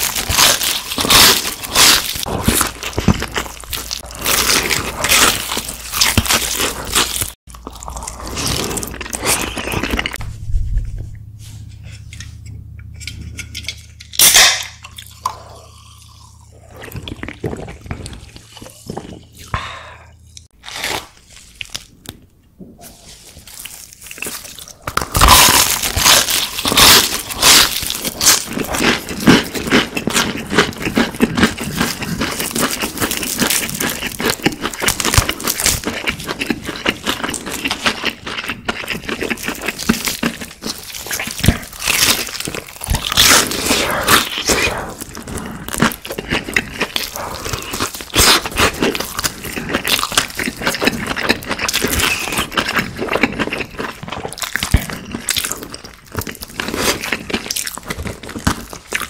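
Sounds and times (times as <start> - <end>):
chewing crispy fried chicken: 0.0 - 10.2, 23.3 - 59.0
low hum: 9.1 - 20.5.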